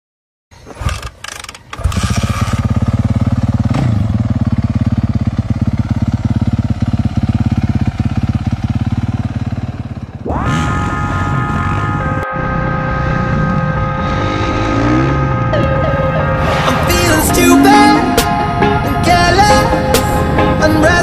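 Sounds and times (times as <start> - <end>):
motorcycle engine starting and idling: 0.5 - 21.0
music: 11.1 - 21.0.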